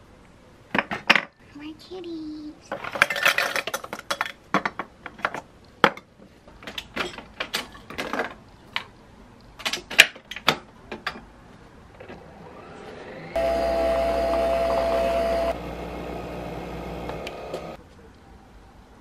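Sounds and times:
coffee machine humming: 0:12.8 - 0:17.8.

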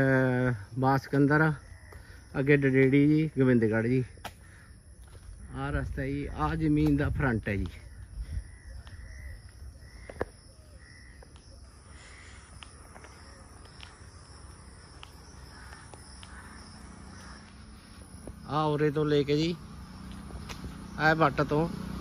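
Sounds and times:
birds calling: 0:00.0 - 0:22.0
high insect drone: 0:00.0 - 0:22.0
low wind rumble: 0:04.4 - 0:10.1.

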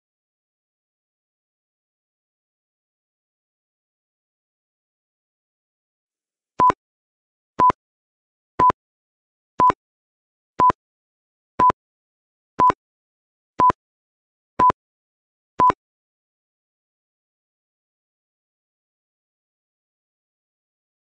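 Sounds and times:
short timer beeps: 0:06.6 - 0:06.8, 0:15.6 - 0:15.8.

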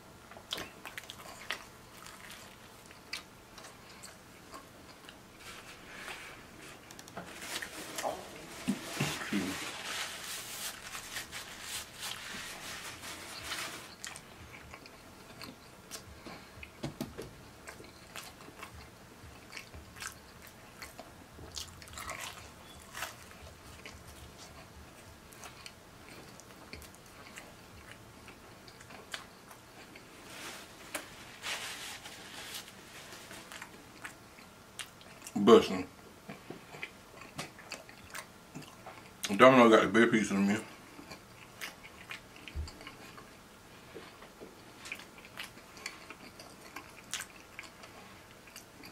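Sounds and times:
person chewing crunchy pizza: 0:00.3 - 0:35.4, 0:36.3 - 0:39.3, 0:40.7 - 0:48.9
paper napkin rubbing: 0:05.4 - 0:14.0, 0:30.2 - 0:33.5.

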